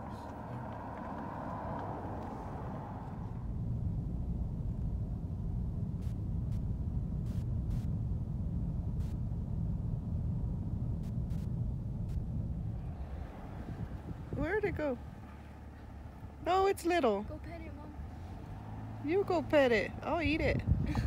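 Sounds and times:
car cabin rumble: 0.0 - 21.0.

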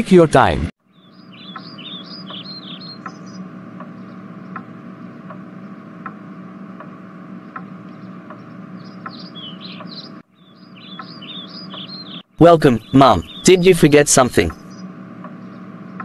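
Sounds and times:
small birds chirping: 0.8 - 16.0
low hum: 0.9 - 16.0.

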